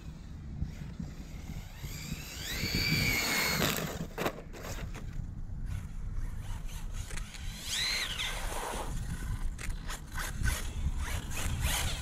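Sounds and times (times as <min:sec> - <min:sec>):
electric motor whine: 0:00.0 - 0:04.2, 0:06.6 - 0:12.0
constant low rumble: 0:00.0 - 0:12.0.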